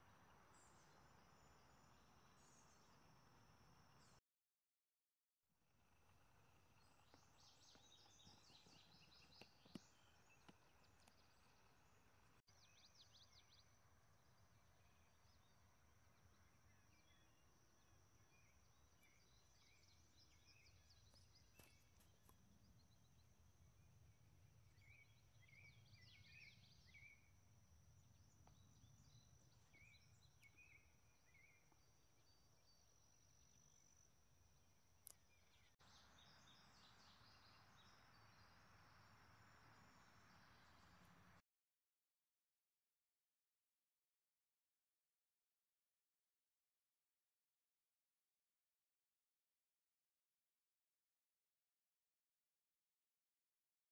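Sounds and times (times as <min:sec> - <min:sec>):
small birds chirping: 0:00.0 - 0:04.2, 0:06.5 - 0:41.4.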